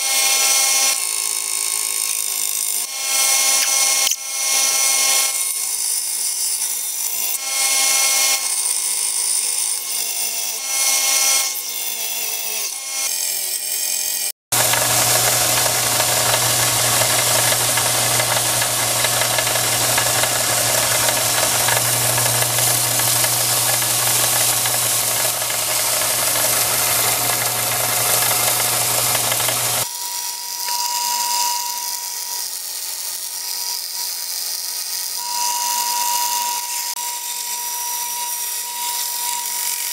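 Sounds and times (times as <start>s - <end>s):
blade grinding on sanding belt: 0.0s - 29.9s, 32.1s - 39.9s
belt sander motor hum: 14.5s - 29.9s.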